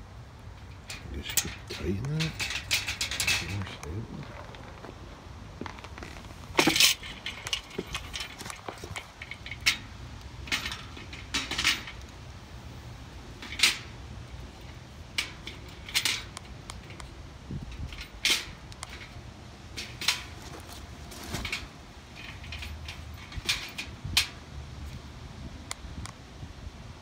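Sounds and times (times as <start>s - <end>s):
steady low rumble: 0.0s - 27.0s
metal parts clinking: 0.6s - 4.8s, 6.0s - 12.0s, 13.4s - 17.0s, 19.8s - 24.3s.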